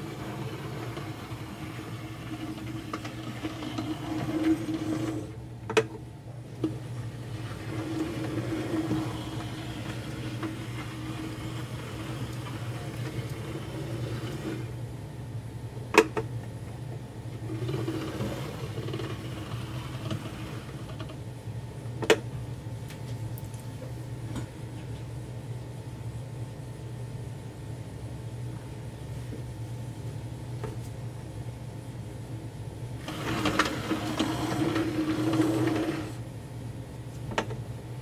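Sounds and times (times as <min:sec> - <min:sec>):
model train motor whirring: 0:00.0 - 0:05.3, 0:07.3 - 0:14.7, 0:17.5 - 0:21.0, 0:33.0 - 0:36.2.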